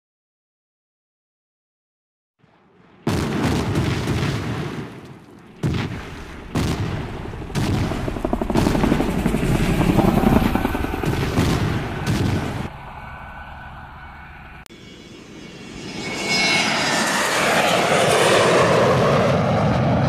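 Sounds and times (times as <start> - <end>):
heavy explosions: 2.4 - 12.8
rapid machine-gun fire: 5.6 - 10.0, 11.0 - 12.7.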